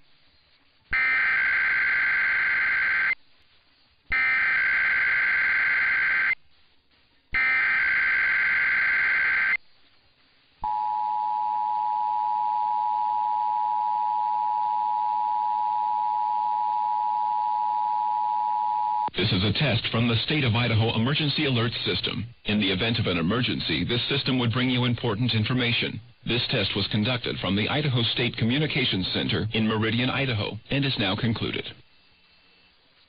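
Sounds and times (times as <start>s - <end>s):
digital header data bursts: 1.0s - 3.2s, 4.1s - 6.4s, 7.4s - 9.6s.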